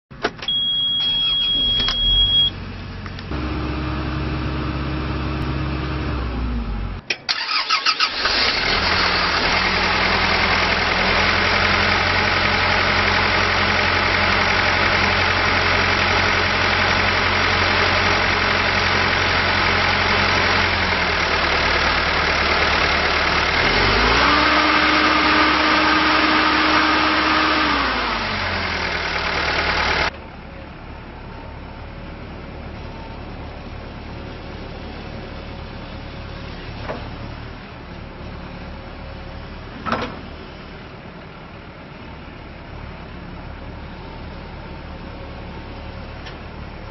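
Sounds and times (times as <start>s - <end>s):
excavator diesel engine running: 0.2s - 46.9s
high steady beep: 0.5s - 2.6s.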